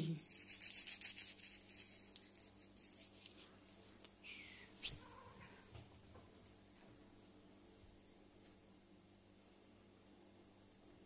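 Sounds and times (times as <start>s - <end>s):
paper crinkling and rustling: 0.2s - 4.0s.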